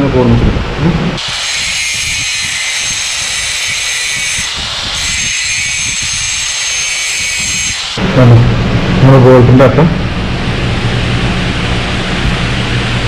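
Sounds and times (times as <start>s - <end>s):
angle grinder grinding steel: 1.2s - 8.0s.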